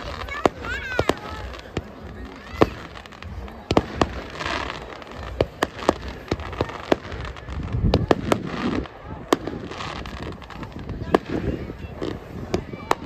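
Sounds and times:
fireworks crackling: 0.0s - 13.0s
fireworks popping and banging: 0.0s - 13.0s
low rumble of reports: 0.0s - 13.0s.

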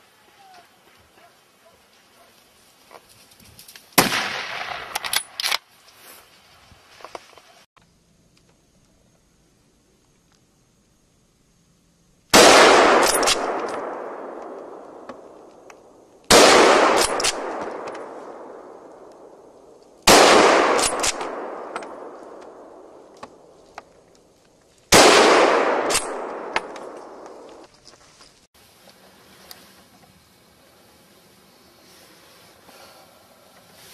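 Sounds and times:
rifle shots echoing: 4.0s - 5.4s, 12.3s - 15.5s, 16.3s - 23.5s, 24.9s - 27.6s.

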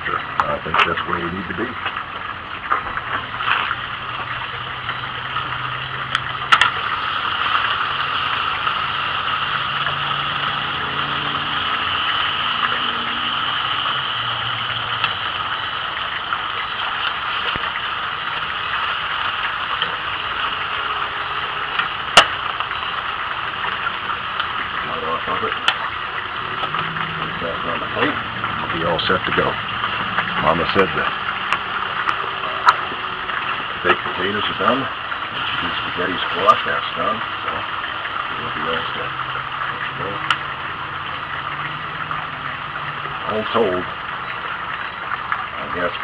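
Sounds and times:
meat sizzling on steel plate: 3.0s - 43.2s.

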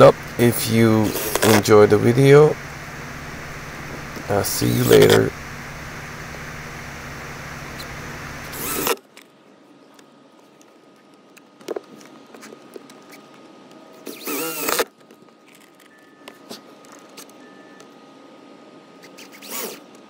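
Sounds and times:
steady background noise: 0.0s - 20.0s
cordless drill whirring: 7.8s - 9.0s, 14.1s - 14.9s.

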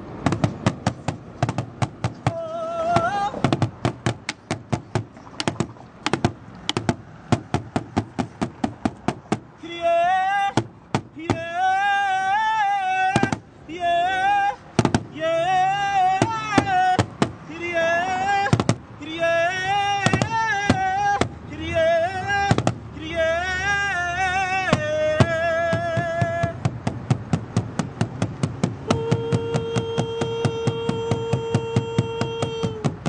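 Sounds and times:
large drum beating: 0.2s - 9.5s, 24.7s - 33.0s
high wavering voice singing: 2.2s - 3.5s.

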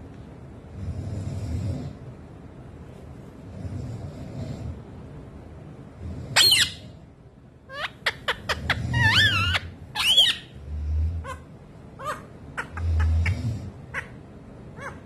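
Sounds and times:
parakeet warbling and chirping: 6.4s - 6.8s, 7.7s - 10.6s, 11.2s - 15.0s.

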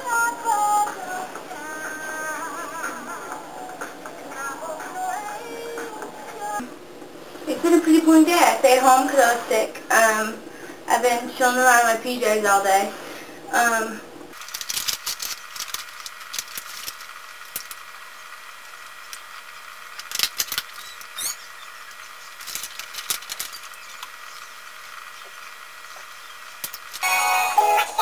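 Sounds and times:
music: 0.0s - 6.6s, 27.0s - 28.0s
steady background hum: 0.0s - 28.0s
plastic bottle crackling: 14.3s - 18.0s, 19.1s - 21.5s, 22.3s - 24.5s.

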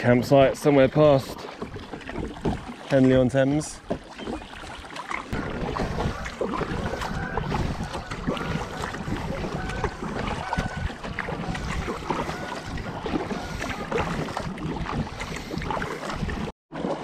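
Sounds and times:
kayak paddling: 0.0s - 17.0s
wind buffeting microphone: 5.3s - 16.5s.

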